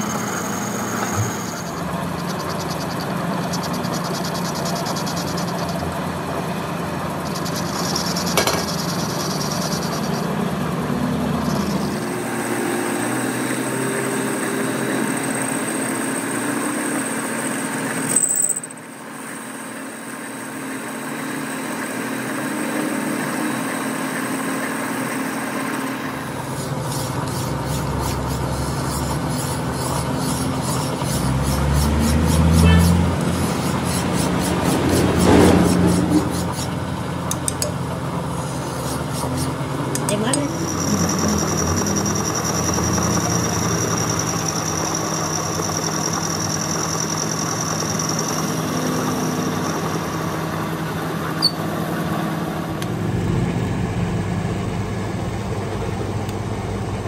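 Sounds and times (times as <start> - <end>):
metal lathe running: 0.0 - 57.0
hand file scraping metal: 26.3 - 36.8, 38.4 - 44.9.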